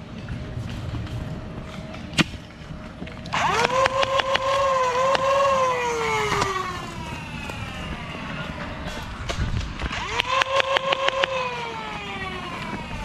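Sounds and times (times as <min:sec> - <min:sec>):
dart blaster flywheels whining: 0:03.3 - 0:13.0
dart blaster shots clicking: 0:03.4 - 0:04.5.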